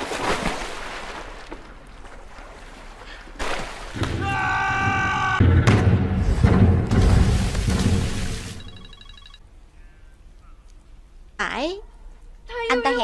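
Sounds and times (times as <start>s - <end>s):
water splashing and churning: 0.0s - 8.7s
heavy low rumbling and thuds: 5.4s - 8.6s.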